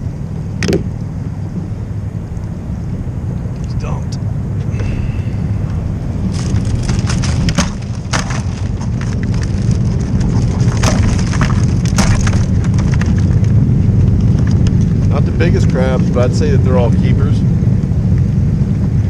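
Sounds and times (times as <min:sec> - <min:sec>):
low rumble: 0:00.0 - 0:19.0
crabs clattering in wire pot: 0:06.3 - 0:13.4.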